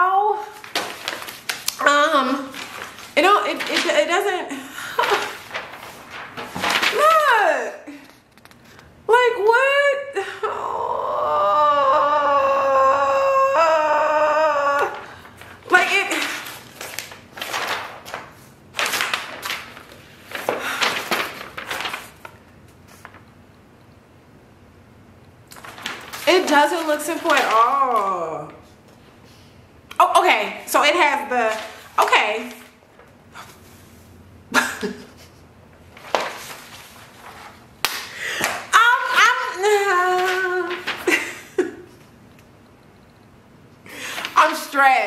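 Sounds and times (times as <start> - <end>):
paper rustling: 0.3 - 8.9, 14.6 - 23.5, 25.5 - 29.5, 30.4 - 34.2, 35.1 - 42.5, 44.0 - 45.0
woman laughing: 4.4 - 5.5, 34.5 - 35.5, 40.9 - 42.0.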